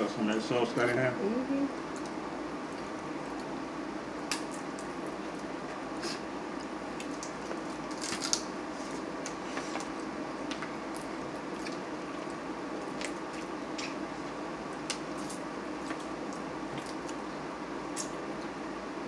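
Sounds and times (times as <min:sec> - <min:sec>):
steady background hum: 0:00.0 - 0:19.0
crab shells cracking: 0:04.2 - 0:05.5, 0:06.6 - 0:08.6
wet squishing: 0:10.5 - 0:17.3.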